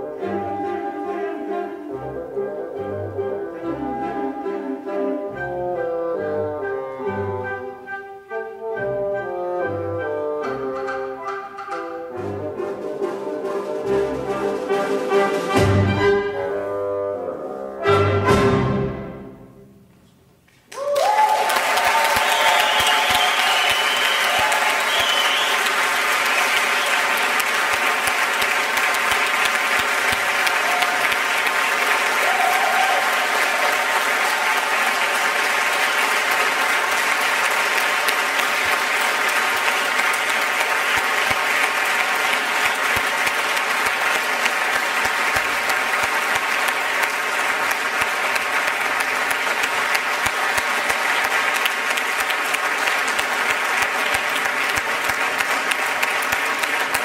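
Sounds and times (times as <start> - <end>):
audience applauding: 20.7 - 57.0.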